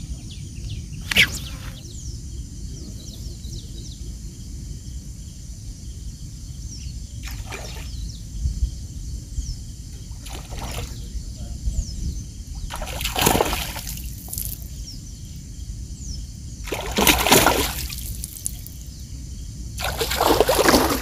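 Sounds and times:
steady low rumble: 0.0s - 12.9s, 17.6s - 19.8s
small birds chirping: 0.0s - 21.0s
crackling rustle: 17.9s - 18.8s.

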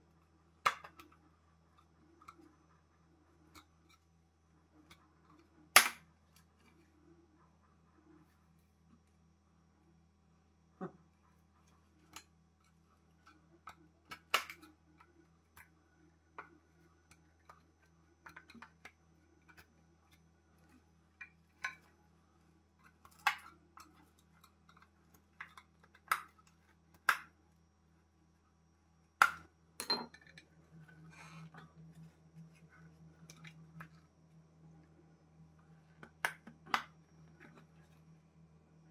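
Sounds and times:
faint low hum: 0.0s - 38.9s
tools clicking on stone worktop: 29.2s - 30.5s.

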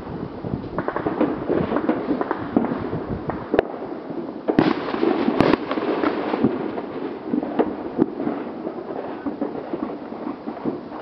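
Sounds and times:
firecrackers crackling: 0.0s - 11.0s
sharp firework bangs: 0.7s - 11.0s.

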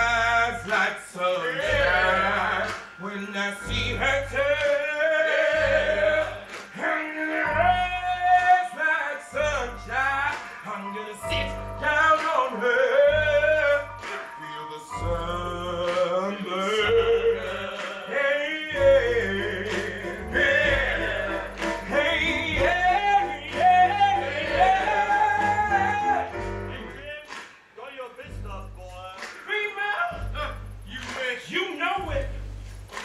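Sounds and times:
heavy low beat: 0.0s - 0.8s, 1.6s - 14.1s, 14.8s - 17.8s, 18.7s - 27.2s, 28.2s - 33.0s
man singing: 0.0s - 32.3s
band playing: 1.5s - 27.2s.

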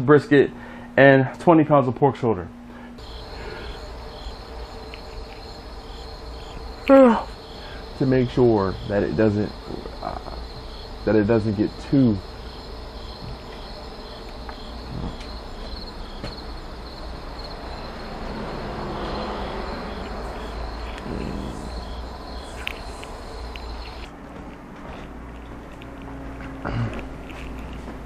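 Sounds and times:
crickets chirping: 2.8s - 24.1s.

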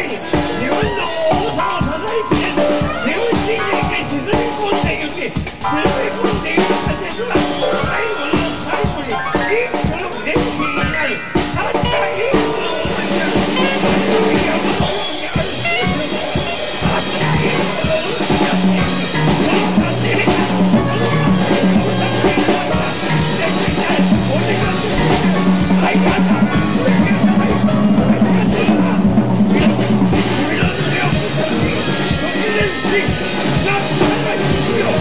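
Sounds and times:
drum kit with rimshots: 0.0s - 35.0s
person singing: 0.0s - 35.0s
low bass notes: 12.4s - 35.0s.

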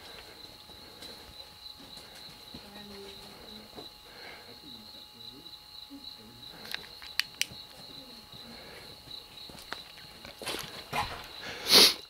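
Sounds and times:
rustling footsteps: 0.0s - 4.2s, 7.5s - 11.6s
crickets chirring: 0.0s - 12.0s.

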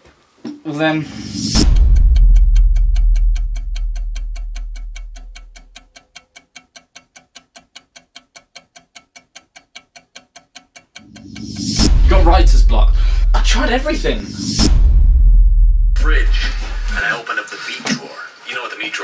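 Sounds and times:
deep low rumble: 1.0s - 5.8s, 11.2s - 17.0s
fast clock ticking: 1.1s - 17.0s.

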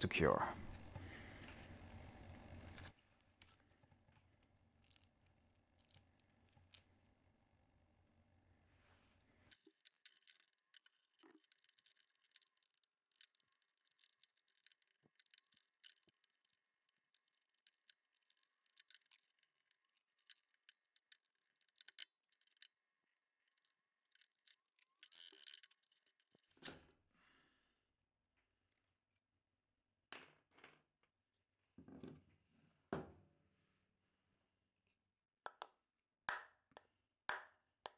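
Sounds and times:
small metal parts clinking: 4.8s - 5.2s, 5.8s - 6.8s, 9.5s - 22.8s, 23.4s - 26.6s.

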